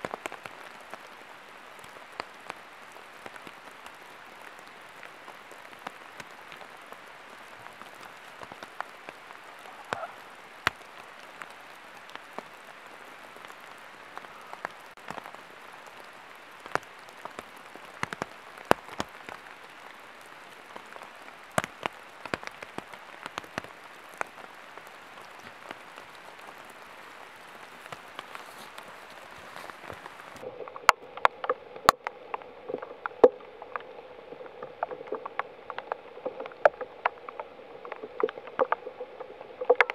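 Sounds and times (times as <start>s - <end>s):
raindrops tapping leaves: 0.0s - 39.9s
steady rain in forest: 0.0s - 39.9s
rustling: 27.7s - 32.0s.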